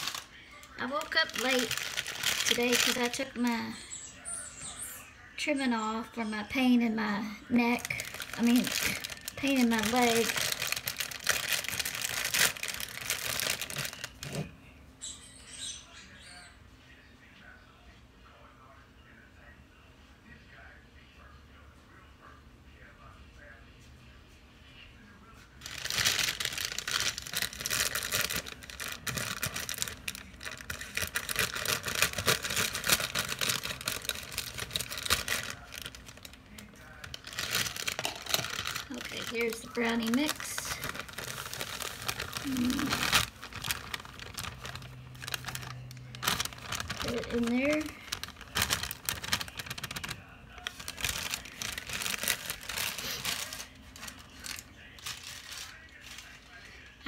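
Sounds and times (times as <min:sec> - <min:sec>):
plastic bag crinkling: 0:00.0 - 0:03.8, 0:07.5 - 0:14.5, 0:25.6 - 0:56.8
scissors cutting plastic: 0:25.7 - 0:50.1.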